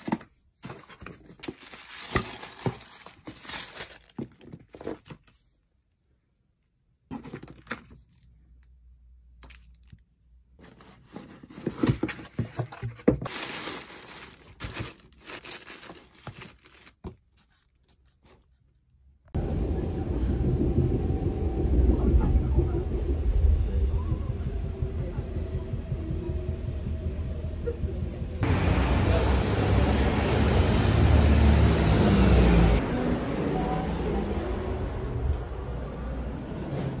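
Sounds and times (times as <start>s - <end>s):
paper packaging rustling: 0.0s - 5.5s, 7.1s - 8.3s, 10.6s - 18.7s
train interior rumble: 19.4s - 37.0s.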